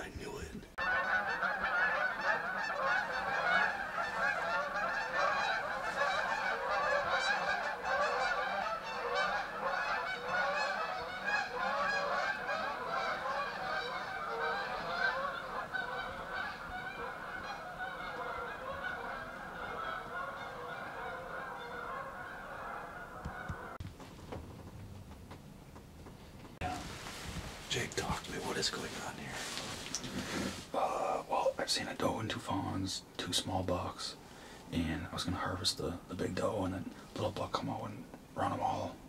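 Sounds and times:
flock of geese honking: 0.8 - 23.8.

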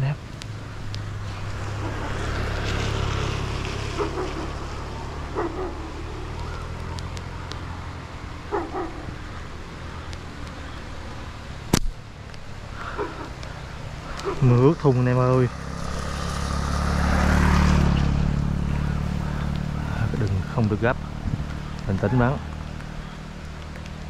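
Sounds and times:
dog barks: 3.8 - 6.1, 8.4 - 9.2, 21.9 - 22.4.

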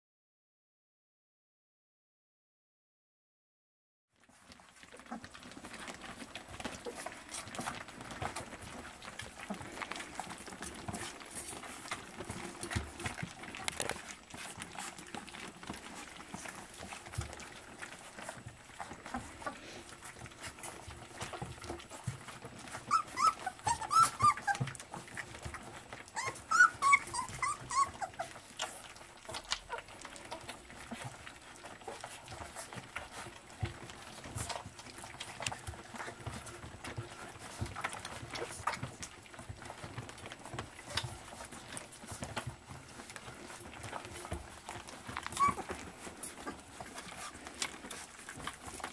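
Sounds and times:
puppies eating from metal dish: 4.2 - 48.9
puppy whines: 22.3 - 32.9, 40.7 - 48.7.

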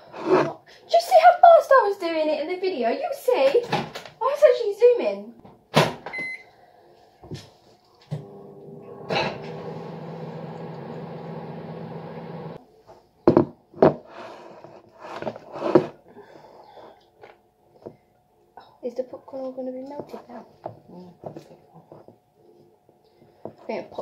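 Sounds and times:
microwave keypad beep: 6.1 - 6.5
microwave oven humming: 8.0 - 12.6.

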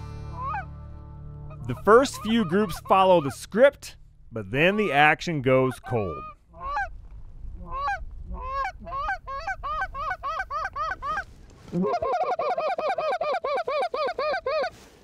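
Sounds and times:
geese honking: 0.3 - 0.8, 1.4 - 3.9, 4.8 - 7.0, 7.6 - 14.8.

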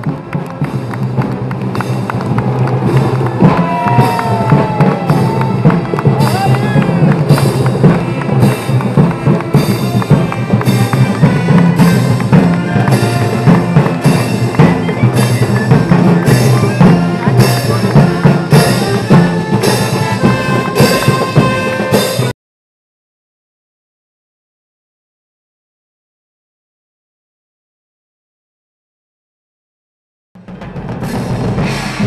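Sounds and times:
bass drum beat: 0.0 - 22.3
marching band playing: 0.0 - 22.3, 30.4 - 32.0
cymbal crashes: 30.8 - 32.0.

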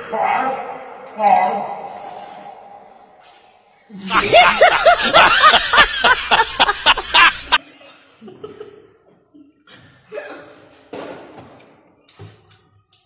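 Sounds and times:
rapid laughter sound effect: 4.1 - 7.6.

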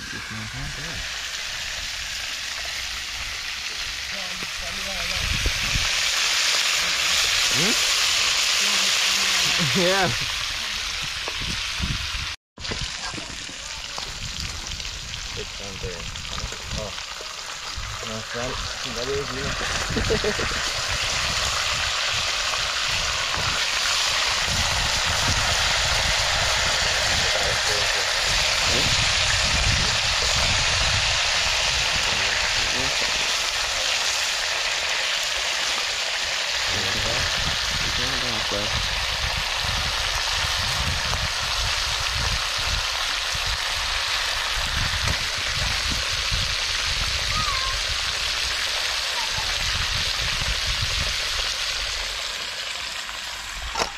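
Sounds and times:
fish sizzling in hot oil: 0.0 - 53.9
wind rumble on microphone: 4.4 - 6.0, 10.1 - 17.0, 17.6 - 33.2, 36.7 - 48.4, 49.4 - 51.5.

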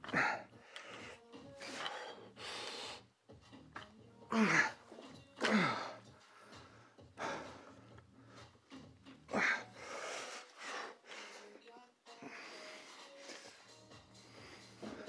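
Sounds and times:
man grunting: 4.3 - 4.8, 5.4 - 6.0.

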